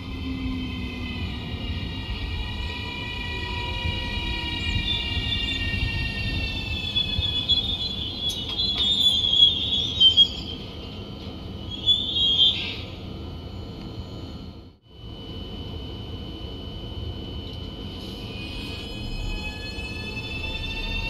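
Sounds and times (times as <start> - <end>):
train running gear squealing: 0.0 - 14.6, 17.5 - 21.0
electric train whine: 0.0 - 21.0.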